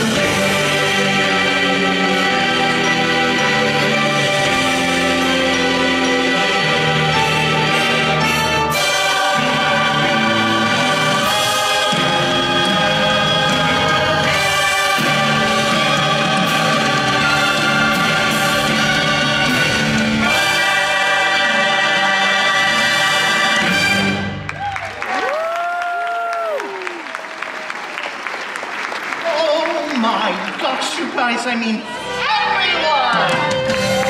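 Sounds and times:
choir singing: 0.0 - 24.3
orchestra playing: 0.0 - 24.8, 28.3 - 34.0.

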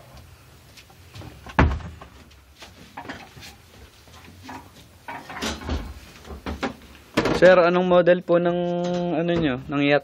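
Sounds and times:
heavy thump: 1.5 - 2.2.

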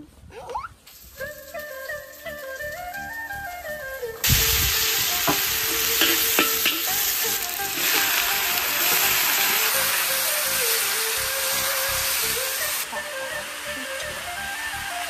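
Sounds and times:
vegetables sizzling in hot oil: 4.2 - 15.0
spatula clinking in pan: 5.9 - 7.0.

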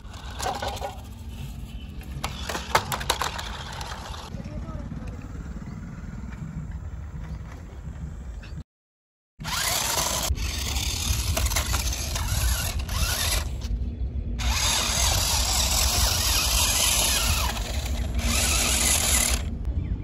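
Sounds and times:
toy car electric motors whirring: 0.0 - 1.4, 2.2 - 4.3, 9.4 - 13.7, 14.4 - 19.5.

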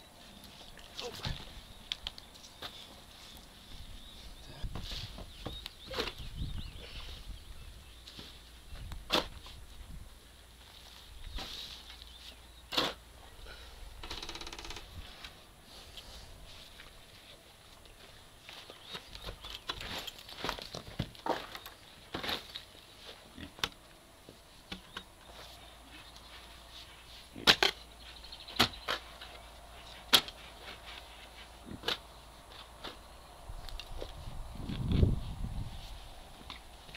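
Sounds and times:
spade chopping into soil: 9.1 - 9.3, 27.4 - 27.8, 28.6 - 29.0, 30.1 - 30.4
shovel scraping soil: 12.7 - 13.0.

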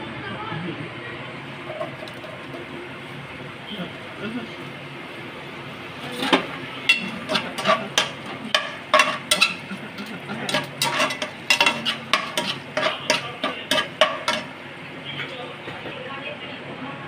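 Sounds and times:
spoon stirring and scraping in pot: 6.2 - 14.6.

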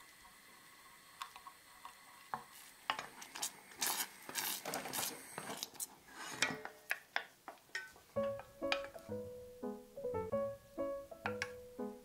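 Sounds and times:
wooden spoon scraping saucepan: 3.9 - 6.8.

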